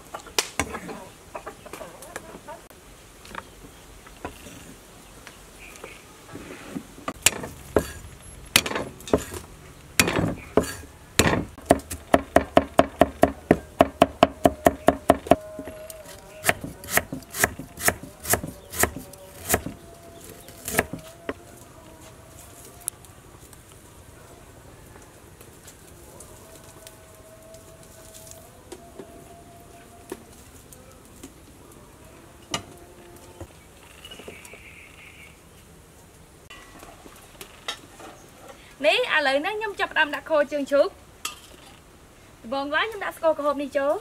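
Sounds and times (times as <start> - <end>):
knife chopping on wooden board: 7.2 - 8.0, 8.6 - 9.4, 10.0 - 15.4, 16.4 - 19.8, 20.6 - 21.0.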